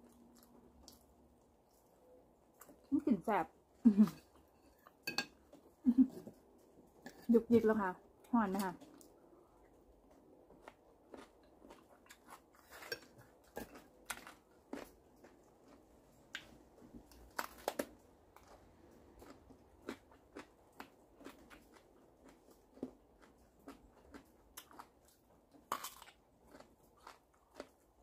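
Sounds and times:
person chewing crunchy food: 8.9s - 28.0s.

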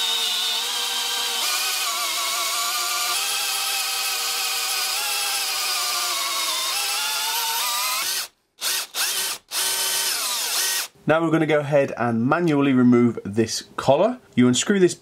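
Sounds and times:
drill motor whining: 0.0s - 10.9s.

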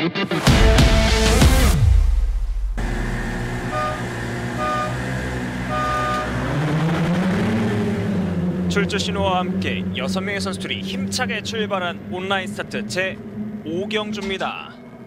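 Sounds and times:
intro music: 0.1s - 6.5s
outboard motors running: 2.8s - 15.0s
start signal beeps: 3.6s - 5.0s, 5.7s - 6.4s.

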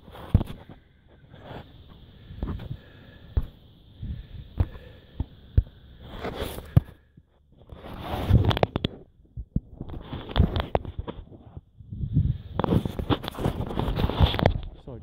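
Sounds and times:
camera rubbing and scraping: 0.0s - 2.8s, 6.0s - 6.9s, 7.5s - 9.1s, 9.7s - 14.8s.

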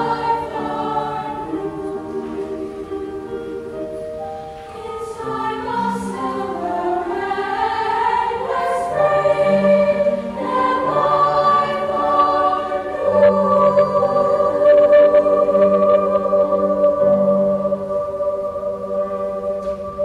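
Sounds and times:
girls' choir singing: 0.0s - 20.0s.

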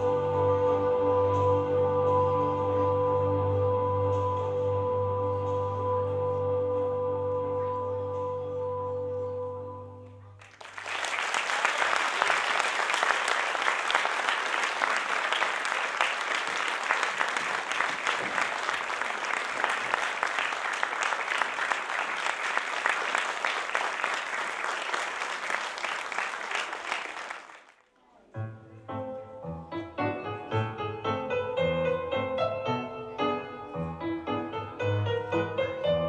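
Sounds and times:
audience applause: 10.4s - 27.8s.

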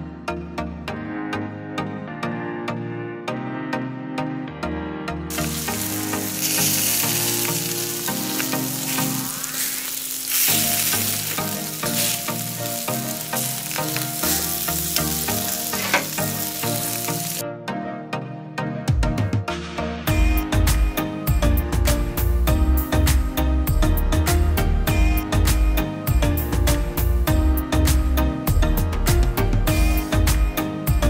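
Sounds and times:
background music: 0.0s - 31.0s
meat sizzling on a grill: 5.3s - 17.4s.

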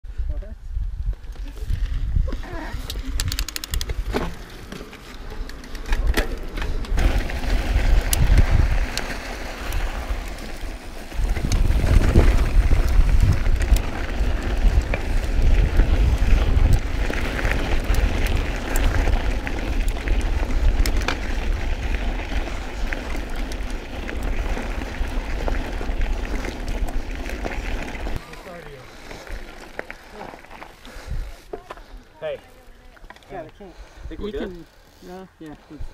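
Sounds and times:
wind buffeting microphone: 0.1s - 4.2s, 5.9s - 28.2s
bike clicks and rattles: 1.0s - 32.0s
tyres crunching over gravel: 3.5s - 33.8s.

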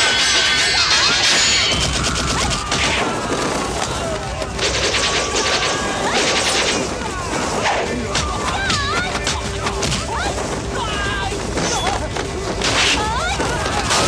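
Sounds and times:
rapid gunfire volleys: 0.0s - 7.8s.

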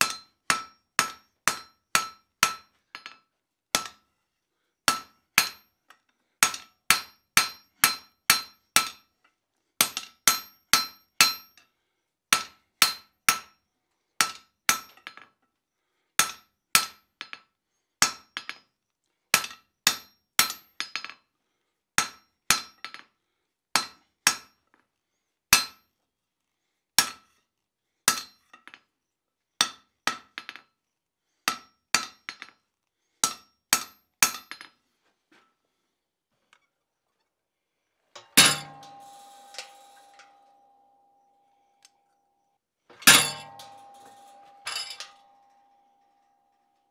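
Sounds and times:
hammer blows on anvil: 38.2s - 41.7s, 42.9s - 46.6s.

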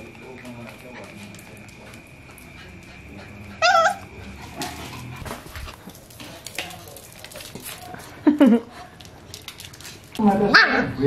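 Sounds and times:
puppy yipping: 3.6s - 4.0s.

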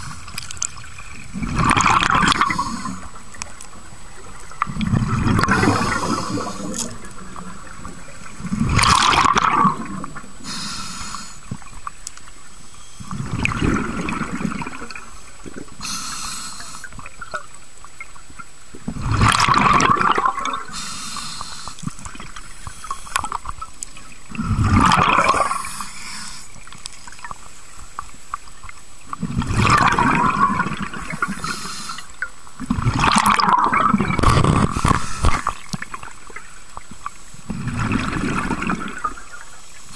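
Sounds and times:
exhaled bubbles gurgling underwater: 0.0s - 39.9s
regulator inhale hiss: 2.4s - 3.2s, 5.6s - 6.9s, 10.4s - 11.6s, 12.6s - 13.1s, 15.8s - 17.0s, 20.7s - 23.2s, 25.5s - 26.7s, 31.0s - 32.2s, 34.7s - 35.7s.

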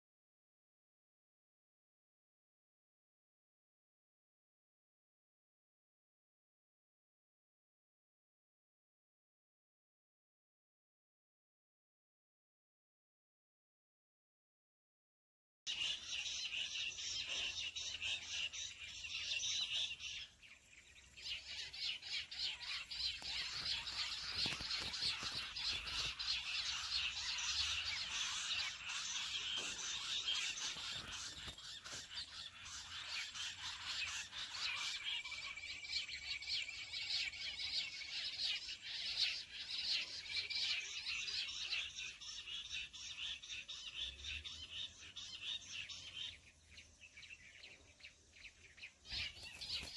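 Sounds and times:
quail calling: 21.3s - 35.6s.

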